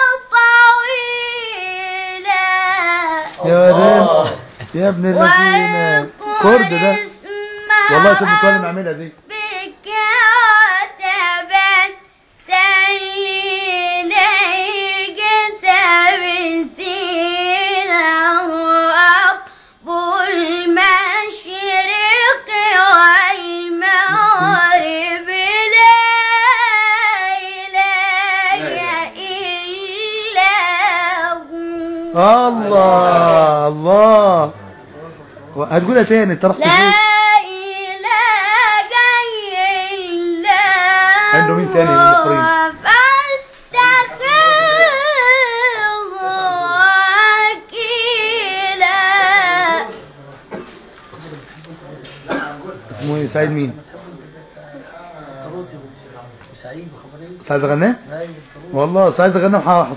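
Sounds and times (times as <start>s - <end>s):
boy reciting melodically: 0.0s - 34.7s, 35.7s - 50.1s
lower voice speaking: 3.4s - 7.0s, 24.1s - 24.7s, 36.6s - 37.0s.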